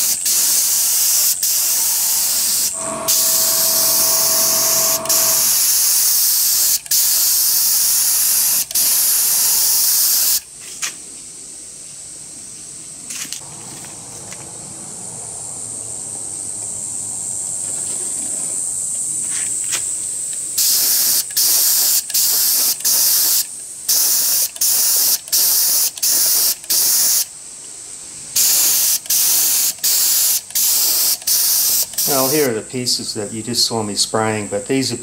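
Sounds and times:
spray gun hissing bursts: 0:00.0 - 0:05.9, 0:28.4 - 0:32.5.

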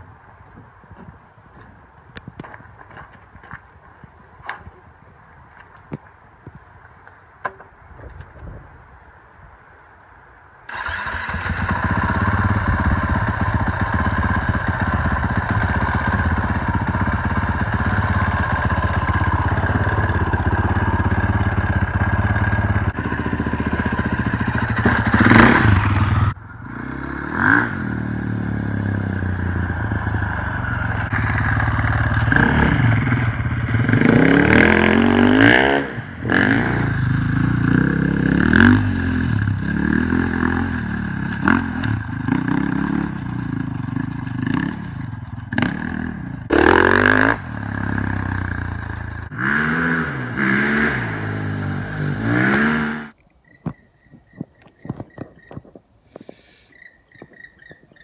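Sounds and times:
dirt bike engine idling and revving: 0:10.7 - 0:53.2.

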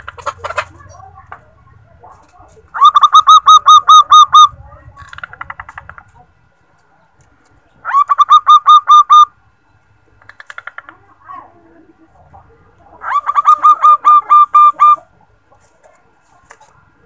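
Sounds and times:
dove staccato cooing: 0:02.7 - 0:06.1, 0:10.2 - 0:15.4.

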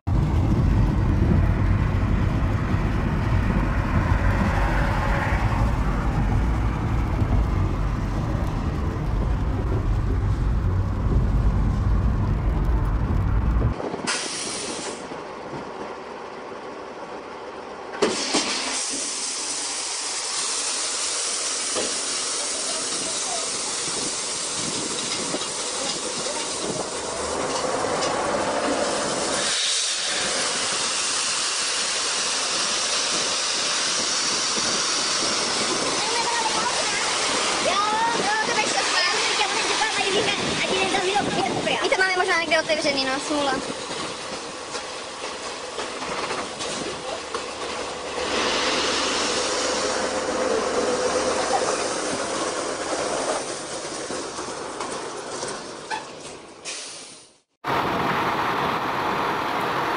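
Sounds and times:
tyres rumbling on wet road: 0:00.0 - 0:59.9
gravel sliding out of truck: 0:45.4 - 0:50.4.

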